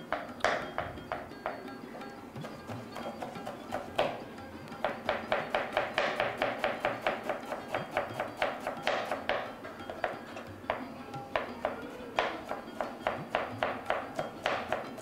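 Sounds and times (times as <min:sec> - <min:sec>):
knife chopping on plastic board: 0:02.4 - 0:04.2, 0:04.8 - 0:10.8, 0:11.4 - 0:15.0.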